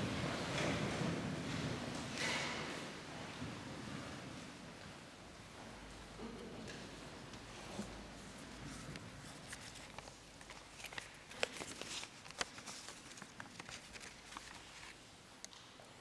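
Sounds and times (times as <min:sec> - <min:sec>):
paper rustling and shuffling: 0:07.5 - 0:15.0.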